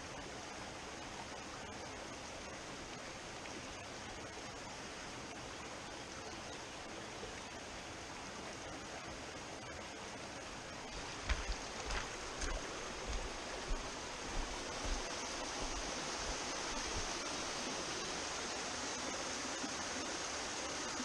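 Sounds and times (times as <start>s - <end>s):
stream rushing over rocks: 7.6s - 21.0s
soft low thumps: 10.9s - 17.2s.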